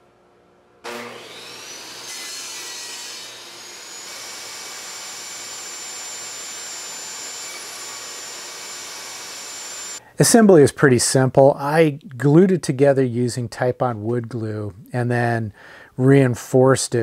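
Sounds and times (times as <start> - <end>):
table saw motor whine: 0.8 - 10.0.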